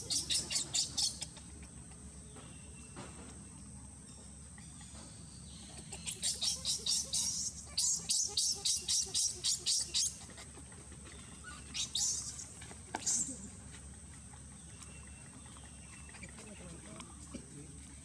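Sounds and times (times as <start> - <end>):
baby monkey squeaking cries: 0.0 - 1.5, 5.7 - 10.5, 11.4 - 13.4
faint high insect drone: 0.0 - 18.0.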